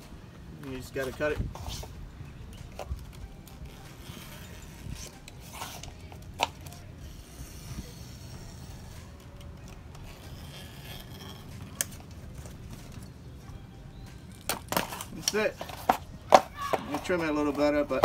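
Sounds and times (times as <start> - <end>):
knife scraping and slicing mesh: 10.0 - 11.9.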